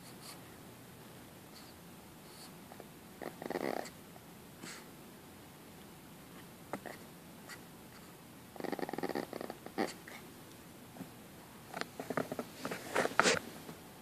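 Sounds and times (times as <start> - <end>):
small dogs growling: 3.2 - 4.0, 8.6 - 10.2.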